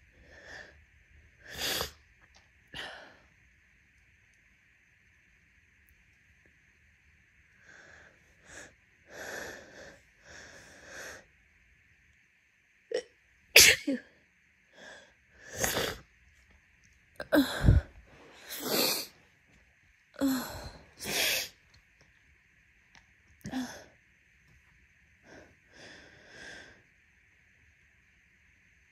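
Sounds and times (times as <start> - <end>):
woman breathing: 0.0 - 2.0, 2.7 - 3.4, 7.5 - 11.4, 14.7 - 16.0, 17.2 - 19.2, 20.2 - 21.6, 23.4 - 24.0, 25.2 - 27.0
woman sneezing: 13.6 - 14.1.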